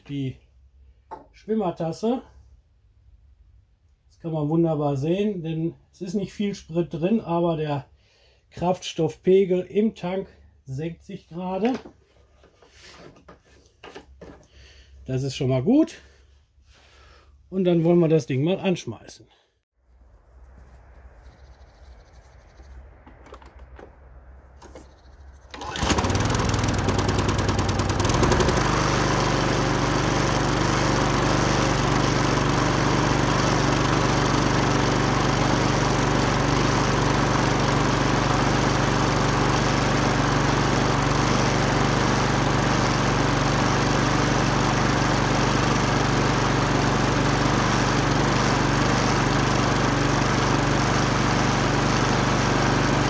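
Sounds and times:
lawn mower engine running: 25.5s - 53.0s.

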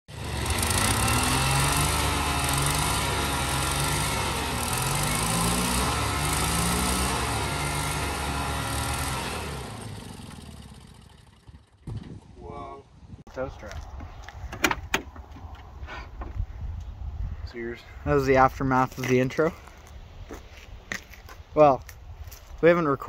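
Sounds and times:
lawn tractor engine running hard: 0.1s - 11.9s.

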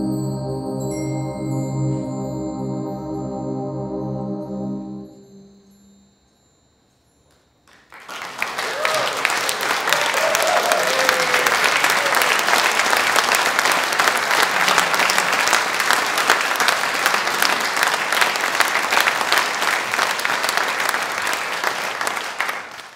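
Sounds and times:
audience applause: 7.7s - 22.9s.

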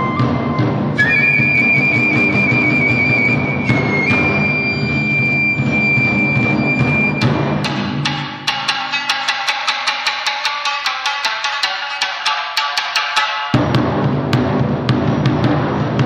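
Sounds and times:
bamboo flute long high note: 0.0s - 7.4s
drumming: 0.0s - 16.0s.

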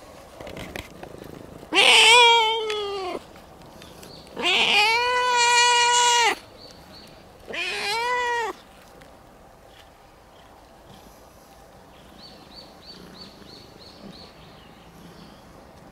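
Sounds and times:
cat meowing loudly: 1.7s - 3.2s, 4.4s - 6.4s, 7.5s - 8.6s.

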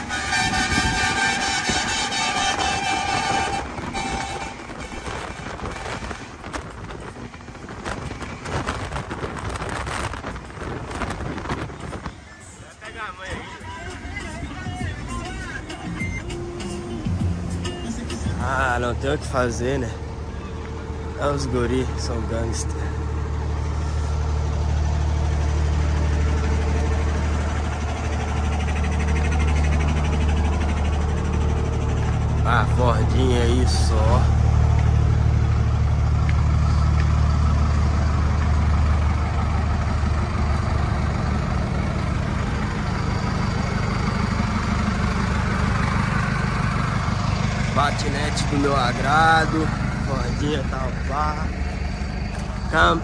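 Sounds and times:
horn tone: 0.0s - 6.7s
truck road and wind noise: 0.0s - 53.0s.

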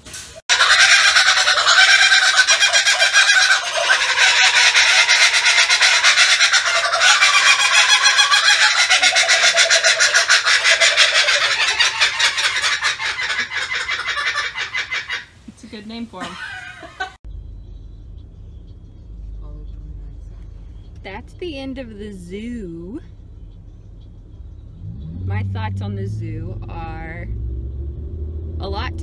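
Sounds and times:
kookaburras laughing chorus: 0.5s - 15.6s, 16.2s - 17.2s.

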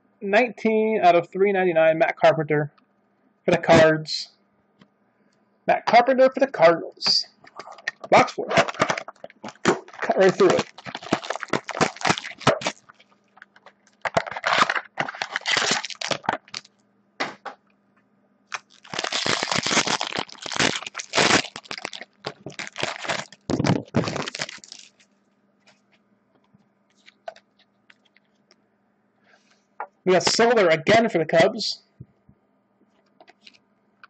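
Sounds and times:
plastic wrap crinkling: 7.5s - 16.7s, 18.5s - 25.1s.

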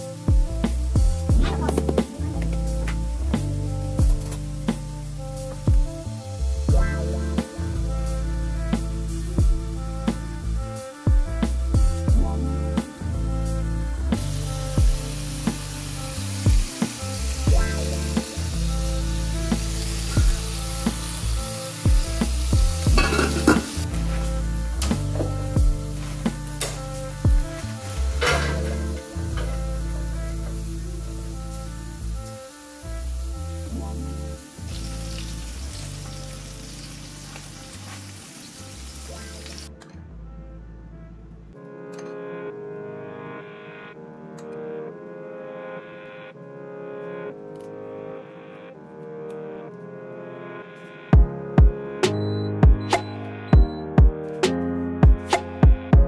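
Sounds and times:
frying pans sizzling: 0.0s - 10.5s, 14.0s - 39.7s
background music with beat: 0.0s - 40.0s, 41.5s - 56.0s
pan lid clattering: 23.0s - 23.7s, 28.2s - 29.5s.

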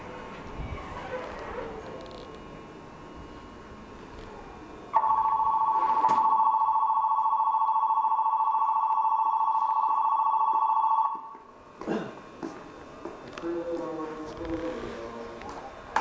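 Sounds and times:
two-tone electronic bell ringing: 5.0s - 11.4s.

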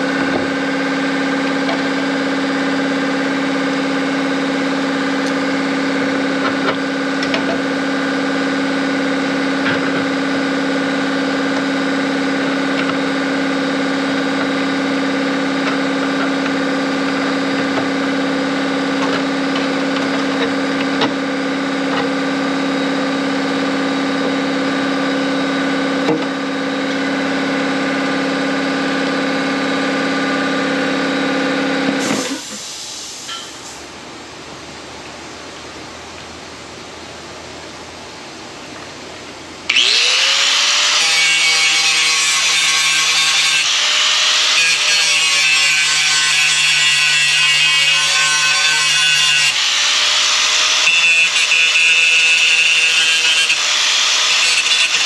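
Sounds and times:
motor-driven machine running: 39.7s - 40.8s.

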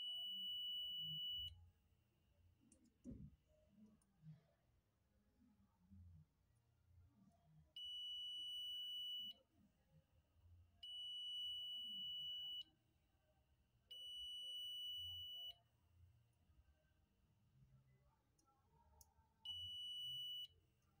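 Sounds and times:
multimeter continuity beeps: 0.0s - 1.5s, 7.8s - 9.4s, 10.8s - 12.7s, 13.9s - 15.6s, 19.5s - 20.5s.

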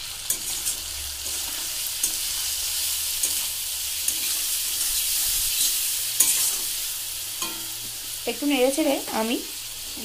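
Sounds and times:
vegetables sizzling in hot oil: 0.0s - 10.0s
metal spatula tapping a pan: 7.4s - 8.0s.

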